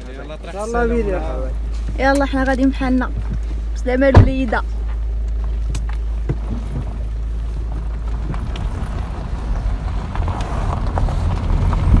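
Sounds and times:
car engine and tyres rumbling: 0.0 - 12.0
wind on microphone: 6.3 - 12.0.

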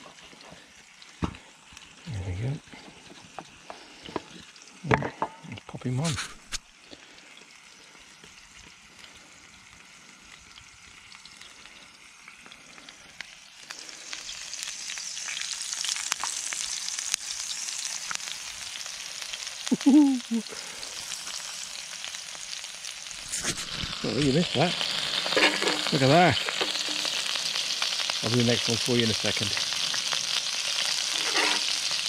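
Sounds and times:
food sizzling in a pan: 0.0 - 32.0
short voice sound: 19.7 - 20.6.

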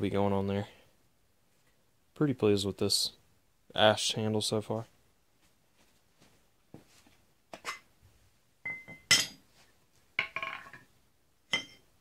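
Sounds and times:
axe heads knocking and clinking: 8.7 - 9.4, 10.2 - 10.9.

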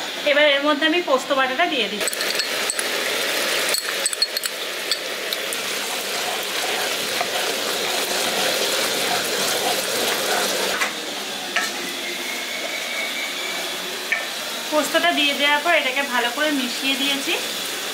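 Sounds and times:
food sizzling in a pan: 1.3 - 17.9
spoon scraping a pan: 2.0 - 10.9.

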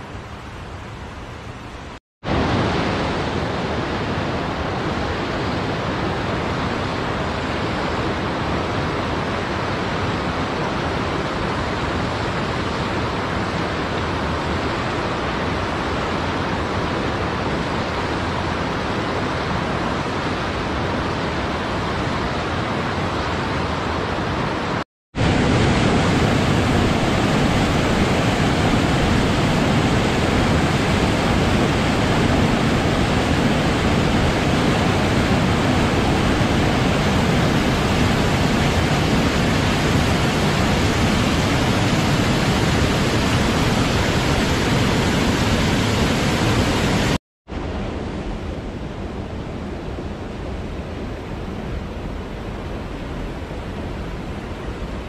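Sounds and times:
river flowing over stones: 25.2 - 47.1
waterfall pouring over boulders: 25.2 - 47.2.

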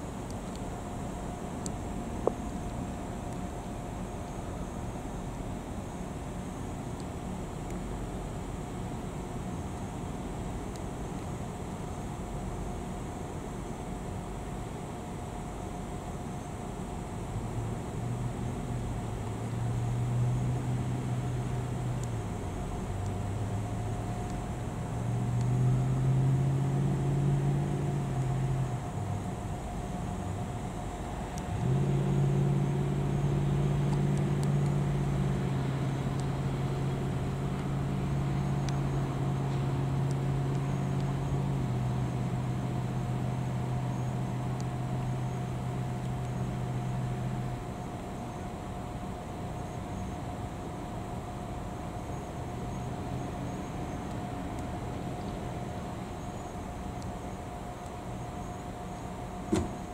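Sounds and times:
vehicle engine running: 16.9 - 59.9.

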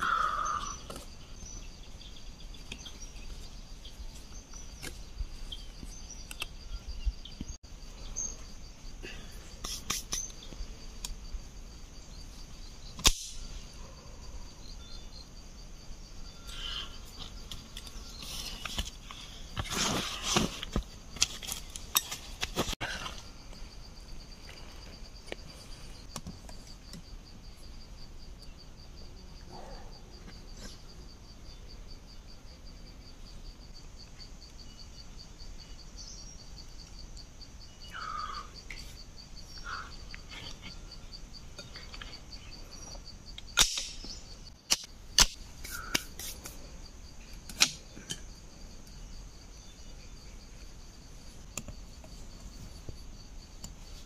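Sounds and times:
insects trilling: 0.0 - 54.0
bamboo sticks clicking: 13.0 - 13.4, 43.4 - 44.0, 44.6 - 46.6, 47.5 - 48.2.

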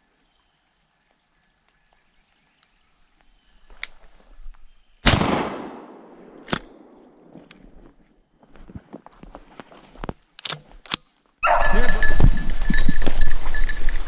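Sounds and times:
shotgun shot echoing: 5.0 - 7.3.

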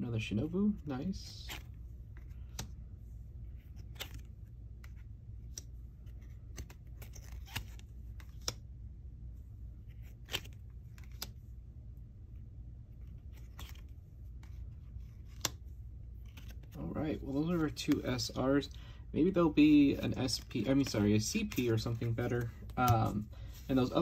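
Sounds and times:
steady low hum: 0.0 - 24.0
trading cards sliding and ticking: 1.5 - 2.9, 3.5 - 8.7, 9.9 - 11.4, 13.0 - 24.0.

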